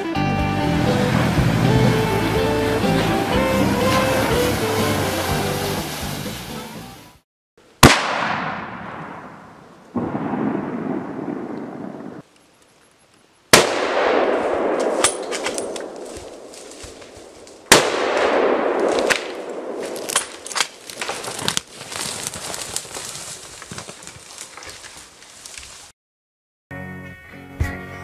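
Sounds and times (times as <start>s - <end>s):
rifle shots echoing: 7.8s - 12.2s, 13.5s - 16.6s, 17.2s - 20.4s.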